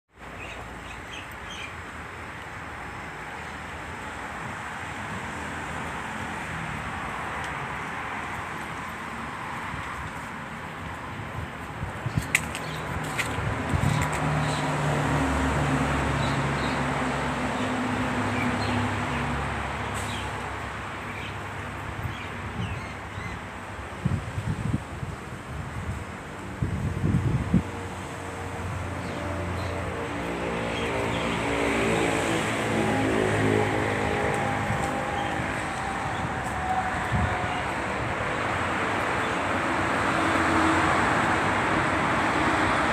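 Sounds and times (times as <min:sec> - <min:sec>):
road traffic noise: 0:00.1 - 0:42.9
wind buffeting microphone: 0:10.9 - 0:14.8, 0:23.8 - 0:28.0, 0:33.8 - 0:39.2
vehicle passing: 0:12.6 - 0:21.8, 0:27.0 - 0:42.9.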